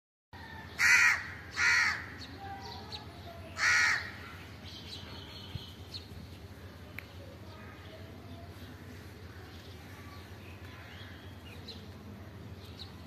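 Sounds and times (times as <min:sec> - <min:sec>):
bird calling loudly: 0:03.5 - 0:04.4.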